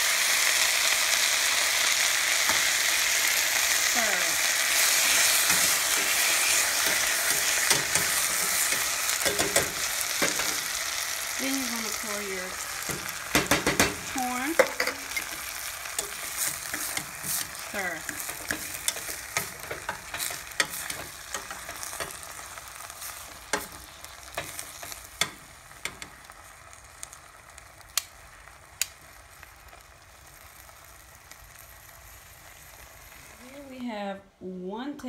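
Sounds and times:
food sizzling in a pot: 0.0 - 34.2
utensil scraping a pot: 4.6 - 10.7, 14.5 - 25.3.

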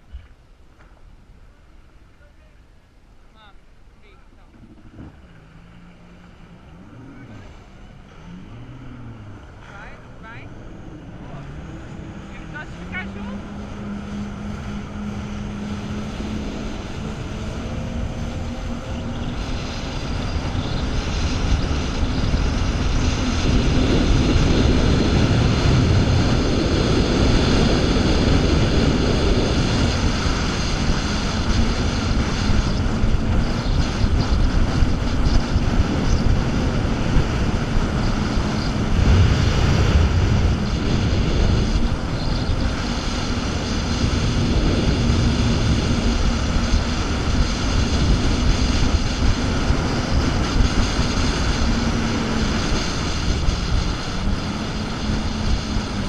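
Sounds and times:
jet ski engine drone: 0.0 - 56.0.

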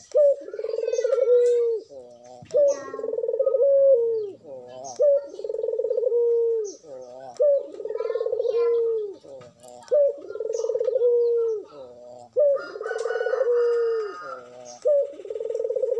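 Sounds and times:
dove cooing: 0.0 - 15.9.

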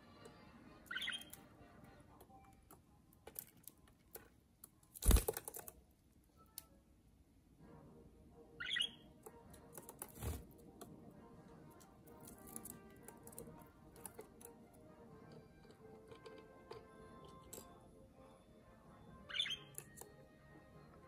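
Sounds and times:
budgerigar chirps: 8.6 - 9.0
birds pecking at seed in metal tray: 9.2 - 10.9, 11.7 - 14.6, 15.2 - 17.7.

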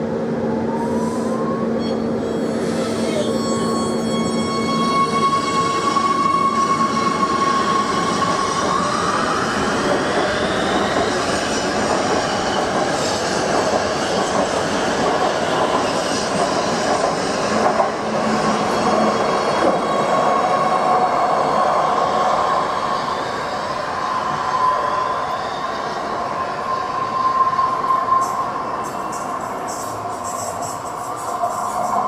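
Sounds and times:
rail running noise: 0.0 - 32.0
wheel squeal: 1.8 - 9.0.

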